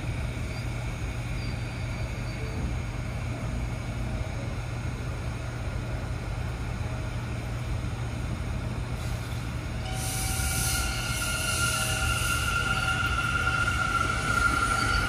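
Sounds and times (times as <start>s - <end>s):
train wheels hissing on rail: 8.0s - 15.0s
high whining tones: 9.9s - 15.0s.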